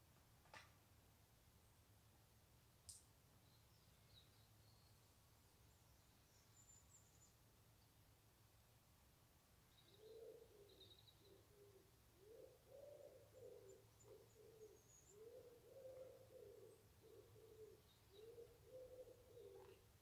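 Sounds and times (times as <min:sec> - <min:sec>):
pigeon cooing: 0:09.9 - 0:19.9.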